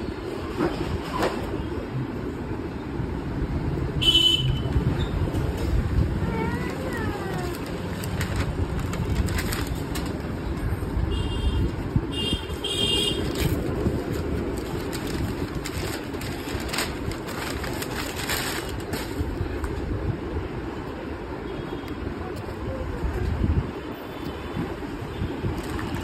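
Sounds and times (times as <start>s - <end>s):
paper rustling: 6.5s - 10.4s, 13.2s - 19.3s, 25.5s - 26.0s.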